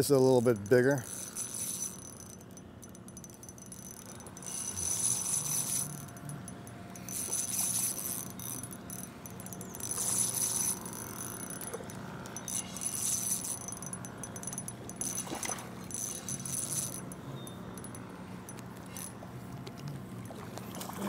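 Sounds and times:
fishing reel whirring: 0:00.0 - 0:21.0.

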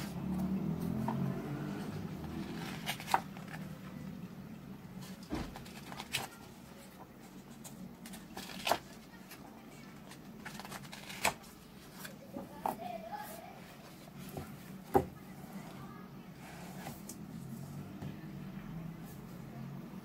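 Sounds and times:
book pages turning: 0:00.0 - 0:04.2, 0:05.0 - 0:12.3, 0:16.3 - 0:18.0.

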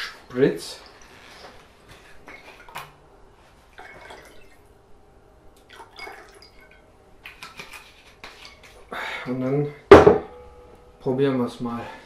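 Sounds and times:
liquid trickling into glass: 0:03.7 - 0:04.7, 0:05.6 - 0:06.8.

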